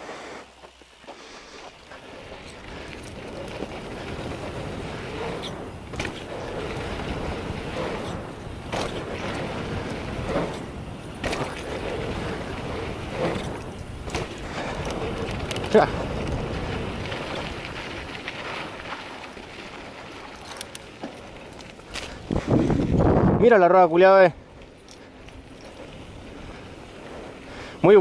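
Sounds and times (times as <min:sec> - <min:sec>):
wind and tyre noise: 0:00.0 - 0:28.0
bike knocking on bumps: 0:00.6 - 0:23.2.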